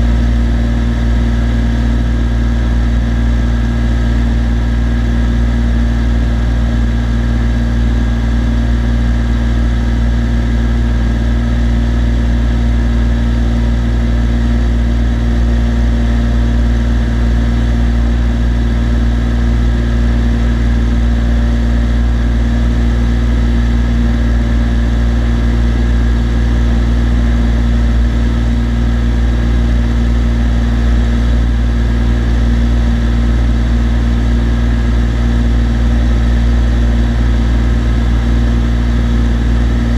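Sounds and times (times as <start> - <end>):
airplane engine and propeller drone: 0.0 - 39.9.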